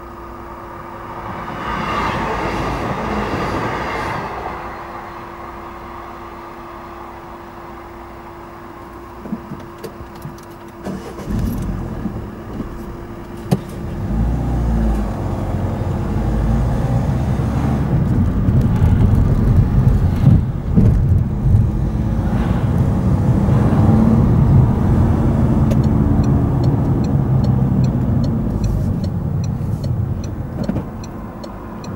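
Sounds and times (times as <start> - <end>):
car engine and tyre noise: 0.0 - 31.9
car indicator ticking: 25.7 - 31.9.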